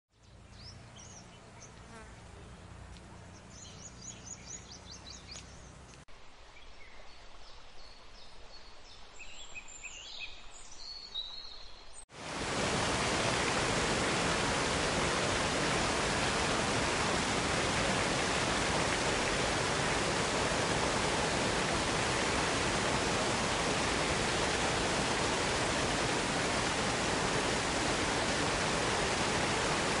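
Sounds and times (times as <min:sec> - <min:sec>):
birds chirping: 0:00.1 - 0:06.0
faint outdoor ambience: 0:00.1 - 0:10.8, 0:12.2 - 0:30.0
stream rushing over rocks: 0:12.1 - 0:30.0.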